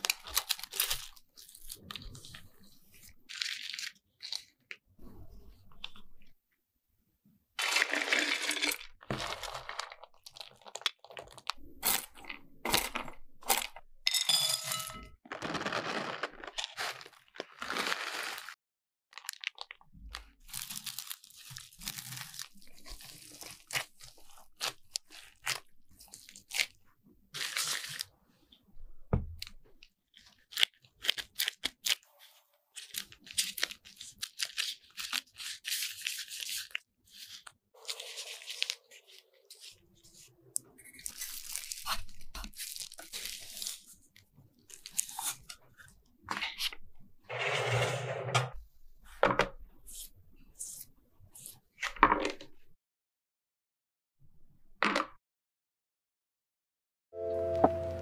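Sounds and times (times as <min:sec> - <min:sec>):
nuts crunching and rustling: 0:00.0 - 0:02.4, 0:07.6 - 0:13.8, 0:15.3 - 0:26.8, 0:32.7 - 0:40.2, 0:40.8 - 0:45.6
nuts rattling into a bowl: 0:07.6 - 0:11.2, 0:14.1 - 0:16.8.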